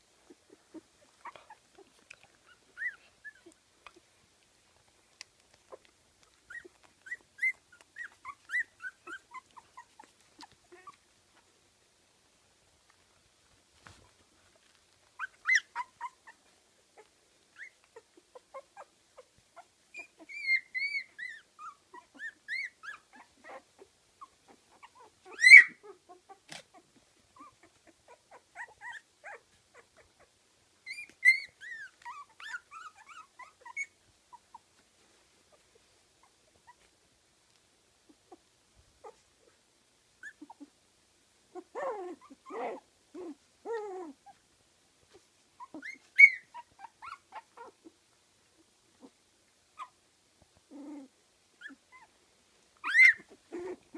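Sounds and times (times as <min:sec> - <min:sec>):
puppies whimpering and squeaking: 0:00.2 - 0:04.1, 0:05.6 - 0:11.0, 0:15.2 - 0:34.7, 0:39.0 - 0:39.3, 0:40.2 - 0:40.7, 0:41.6 - 0:44.4, 0:45.1 - 0:47.9, 0:50.7 - 0:52.1, 0:52.8 - 0:53.9.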